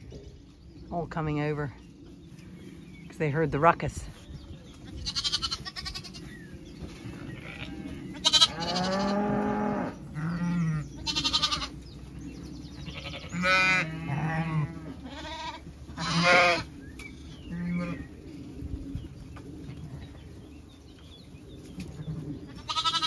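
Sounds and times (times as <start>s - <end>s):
ewes bleating deeply: 5.0s - 6.3s, 7.3s - 11.8s, 12.8s - 16.7s, 22.5s - 23.0s
lambs bleating: 5.0s - 6.3s, 7.3s - 9.2s, 10.2s - 11.7s, 12.9s - 16.7s, 22.5s - 23.0s.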